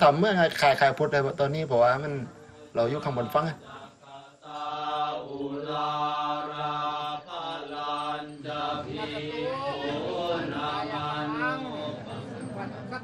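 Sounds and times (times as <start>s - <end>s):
monks chanting in unison: 0.0s - 13.0s.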